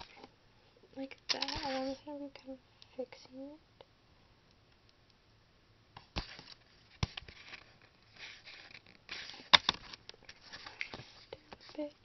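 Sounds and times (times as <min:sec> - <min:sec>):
rustling: 0:06.0 - 0:12.0.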